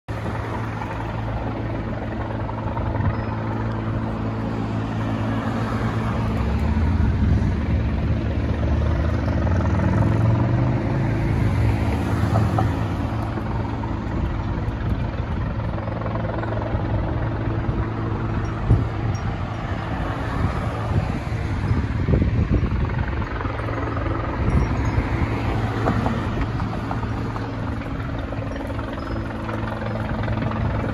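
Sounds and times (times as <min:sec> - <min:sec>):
helicopter hovering: 0:00.1 - 0:30.9.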